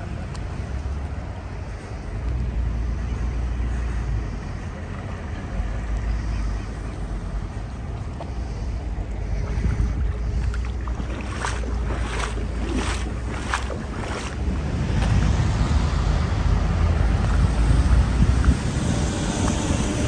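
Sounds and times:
wind buffeting microphone: 0:08.8 - 0:20.0.

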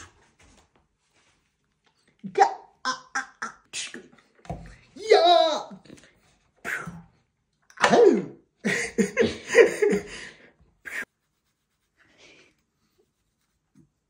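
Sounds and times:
man laughing: 0:08.6 - 0:11.1.

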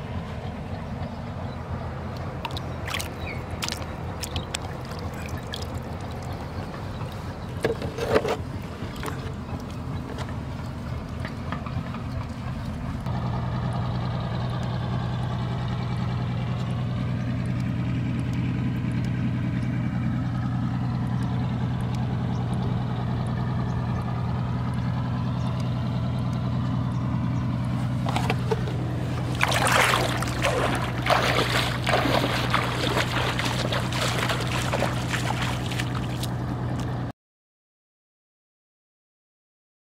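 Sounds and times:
low engine hum: 0:00.0 - 0:37.1
splashes and knocks: 0:02.4 - 0:12.5, 0:27.9 - 0:37.0.

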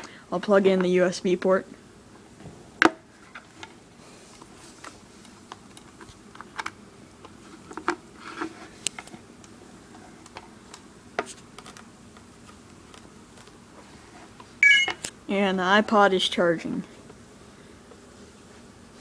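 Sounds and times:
cable handling clicks and scrapes: 0:03.2 - 0:15.1.

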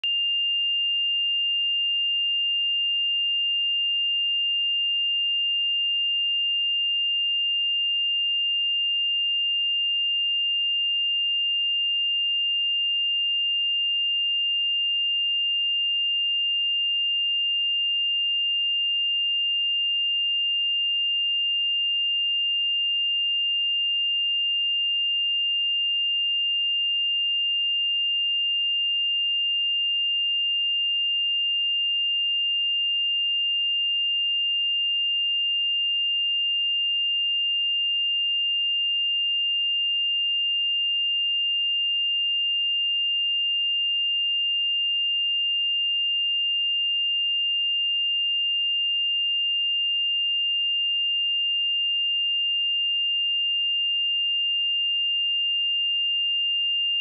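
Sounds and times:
high-pitched sine test tone: 0:53.7 - 0:57.0.

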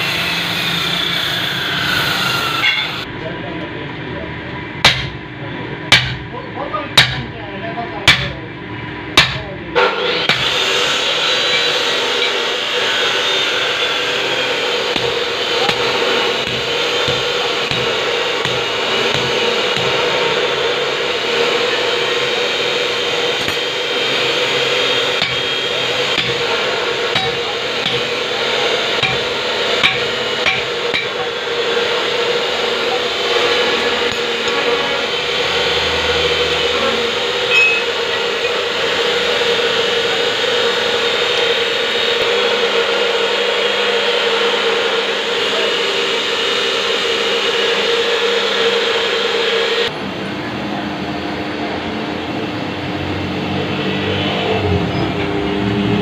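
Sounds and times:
whirring motor hum: 0:00.0 - 0:56.0
hammer knocks on hot metal: 0:04.8 - 0:05.2, 0:05.9 - 0:06.3, 0:07.0 - 0:07.3, 0:08.1 - 0:08.4, 0:09.2 - 0:09.4, 0:14.9 - 0:20.0, 0:29.0 - 0:31.2.

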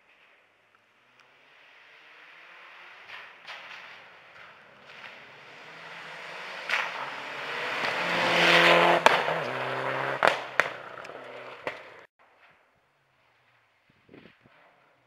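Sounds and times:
sharp cracks: 0:03.0 - 0:12.1
rally car engine passing: 0:03.6 - 0:12.1.

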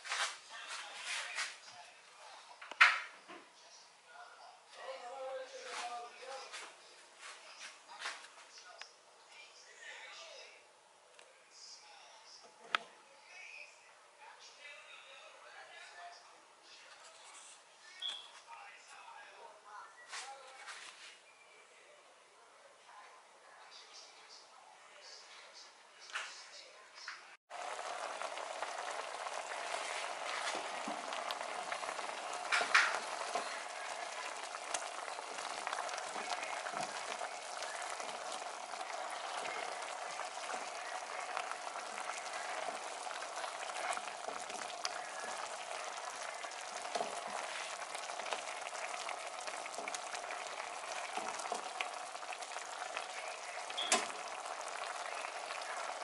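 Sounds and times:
shrimp sizzling in sauce: 0:27.5 - 0:56.0.

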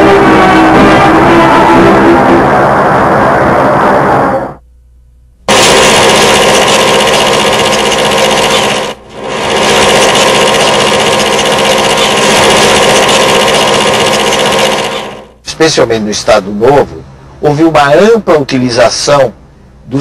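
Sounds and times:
loud mechanical machine noise: 0:05.5 - 0:15.4.

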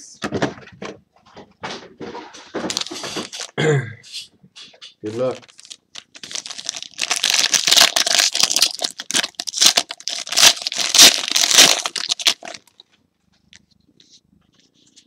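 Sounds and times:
foil wrapper tearing and crinkling: 0:05.3 - 0:12.8.

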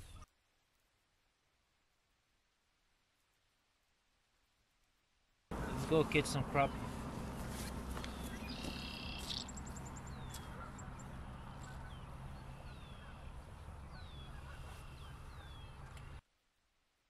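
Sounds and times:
steady low rumble: 0:05.5 - 0:14.5
bird chirps sliding downward: 0:08.0 - 0:13.3.

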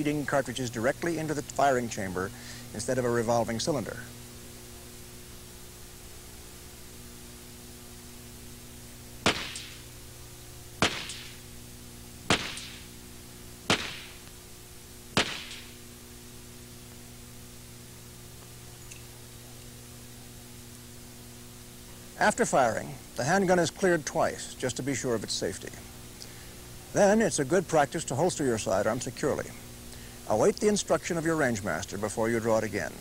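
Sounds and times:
steady low hum: 0:00.0 - 0:33.0
pistol shots: 0:09.2 - 0:09.9, 0:10.8 - 0:11.4, 0:12.3 - 0:12.9, 0:13.7 - 0:14.3, 0:15.2 - 0:15.8.

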